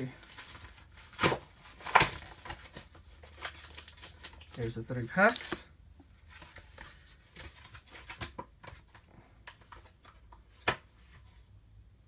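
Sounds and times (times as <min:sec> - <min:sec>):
plastic packaging crinkling: 0:00.3 - 0:05.7.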